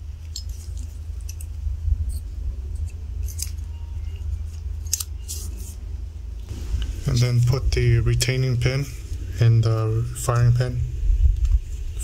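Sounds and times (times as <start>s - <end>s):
metal parts clicking and scraping: 0.0s - 5.8s
steady low hum: 0.0s - 12.0s.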